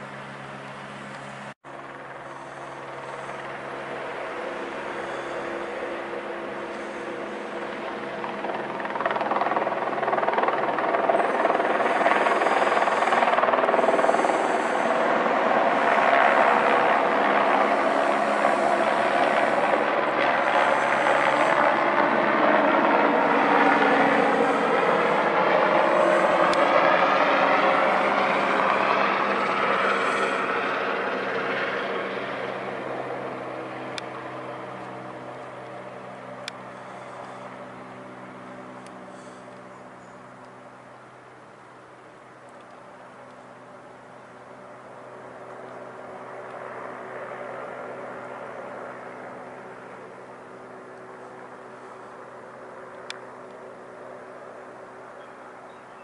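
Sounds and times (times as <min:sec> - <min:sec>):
helicopter flying past: 0:00.0 - 0:56.0.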